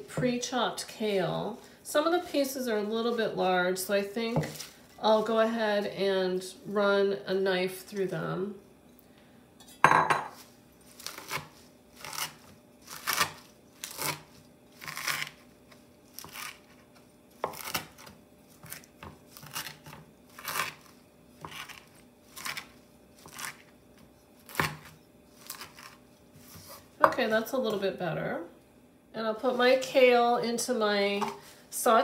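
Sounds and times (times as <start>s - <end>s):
knife chopping on wooden board: 17.4s - 20.8s, 21.4s - 25.9s.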